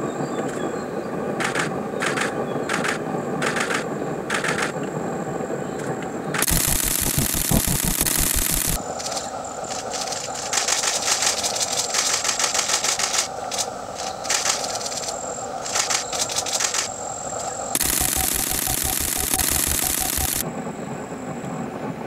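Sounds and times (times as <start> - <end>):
steady background hum: 0.0 - 22.0
rapid clicking: 1.4 - 4.8, 6.4 - 16.9, 17.8 - 20.4.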